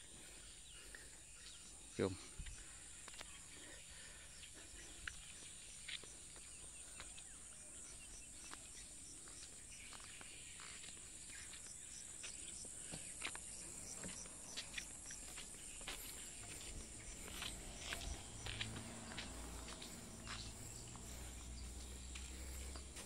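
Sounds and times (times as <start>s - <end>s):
footsteps on planks and gravel: 2.4s - 3.6s, 4.5s - 23.0s
evenly spaced chirps: 4.7s - 23.0s.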